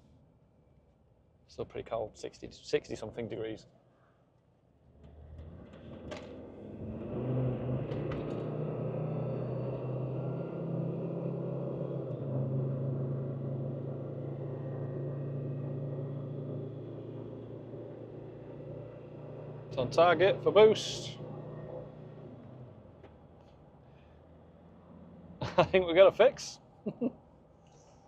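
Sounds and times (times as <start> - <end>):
diesel engine accelerating hard: 4.9 - 26.2.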